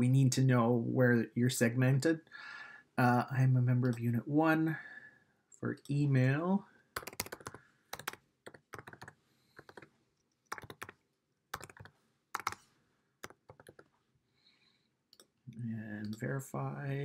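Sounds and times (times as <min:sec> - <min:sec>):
computer keyboard typing: 0:07.0 - 0:13.9.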